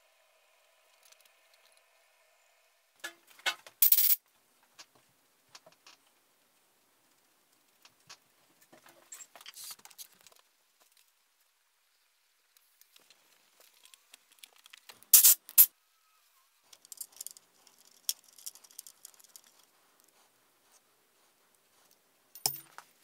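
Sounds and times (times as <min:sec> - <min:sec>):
metallic clink: 0:22.4 - 0:22.8.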